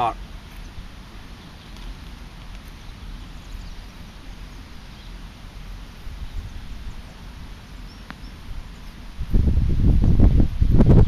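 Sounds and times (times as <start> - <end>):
wind rumble on microphone: 6.0 - 11.0.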